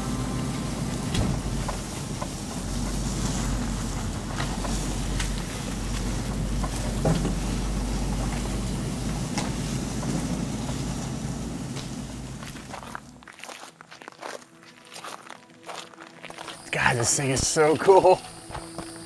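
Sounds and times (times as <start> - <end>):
pickup truck engine rumbling: 0.0 - 13.5
sharp crackles and clicks: 1.1 - 10.8.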